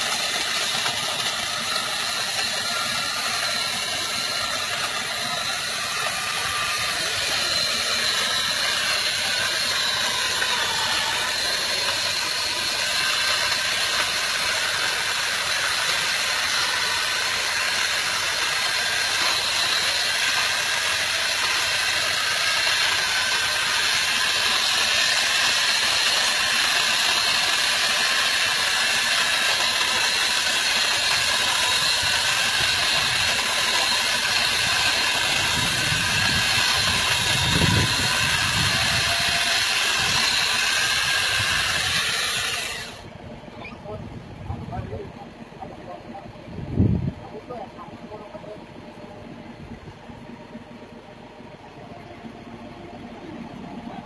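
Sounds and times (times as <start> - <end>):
truck engine running: 0.0 - 26.8, 42.8 - 54.0.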